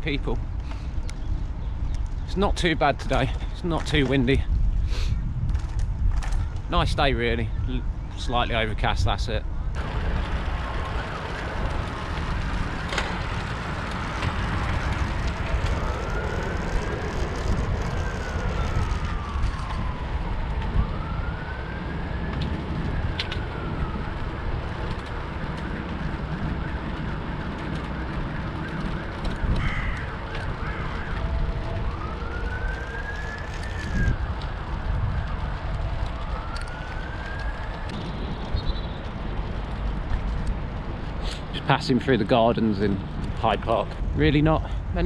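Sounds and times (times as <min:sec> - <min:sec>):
wind on microphone: 0:03.0 - 0:41.6
emergency siren wailing: 0:09.8 - 0:40.3.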